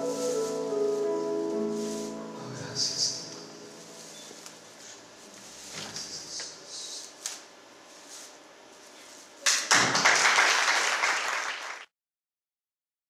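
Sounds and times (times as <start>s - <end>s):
audience applause: 9.5s - 11.9s.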